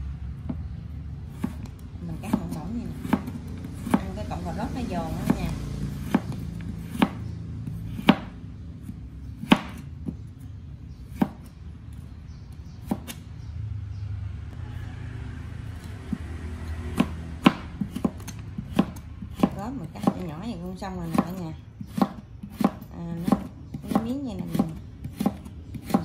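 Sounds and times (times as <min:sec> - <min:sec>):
knife chopping on cutting board: 0:01.3 - 0:04.2, 0:05.1 - 0:10.2, 0:11.1 - 0:11.5, 0:12.8 - 0:13.2, 0:16.9 - 0:20.3, 0:21.0 - 0:26.0.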